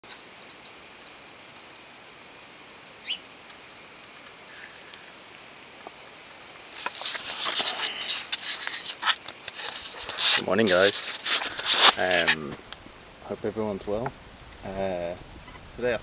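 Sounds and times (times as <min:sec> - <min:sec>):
high-pitched insect drone: 0:00.0 - 0:12.6
rising bird chirp: 0:03.0 - 0:03.3.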